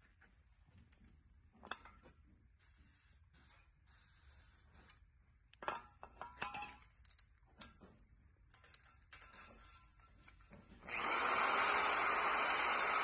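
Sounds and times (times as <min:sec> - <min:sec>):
can and tools clinking on metal: 0:05.6 - 0:07.8, 0:08.5 - 0:10.2.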